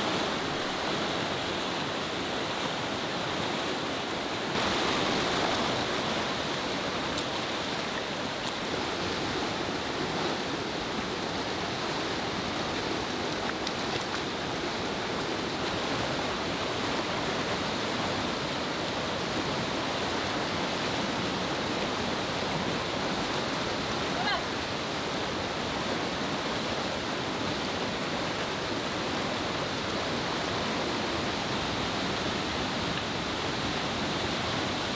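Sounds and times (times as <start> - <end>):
river rushing over rapids: 0.0 - 34.9.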